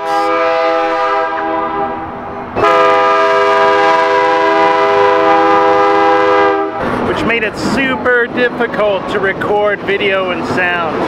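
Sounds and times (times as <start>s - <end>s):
locomotive air horn: 0.0s - 7.0s.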